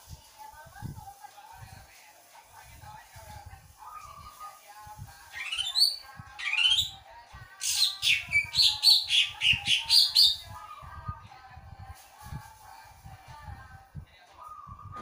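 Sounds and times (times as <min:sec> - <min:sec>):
bird singing whistled notes: 0:05.4 - 0:07.0, 0:07.6 - 0:10.6, 0:14.4 - 0:15.0.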